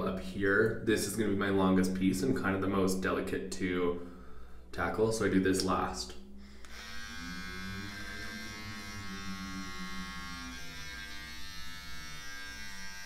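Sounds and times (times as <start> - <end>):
electric beard trimmer humming: 6.4 - 13.0.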